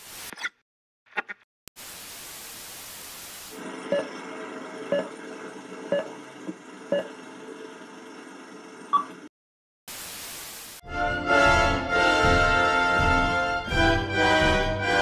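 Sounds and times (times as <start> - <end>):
static hiss: 1.8 - 3.6, 9.9 - 10.8.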